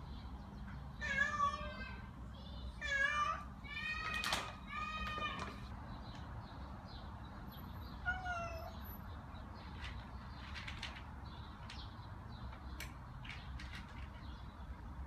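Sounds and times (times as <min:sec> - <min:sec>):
cat meowing: 0:01.0 - 0:02.0, 0:02.8 - 0:05.6, 0:08.0 - 0:08.8.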